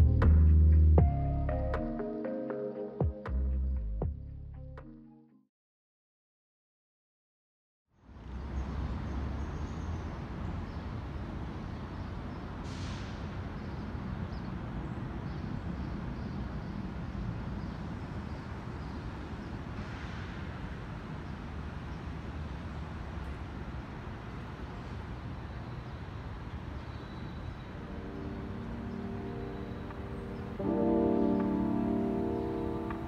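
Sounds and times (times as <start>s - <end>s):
distant traffic rumble: 8.1s - 33.0s
faint brief hisses: 12.6s - 13.3s.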